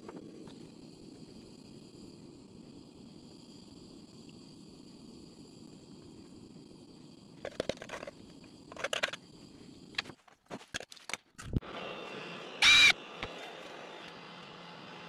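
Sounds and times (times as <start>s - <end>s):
cordless drill whirring: 12.6s - 13.3s.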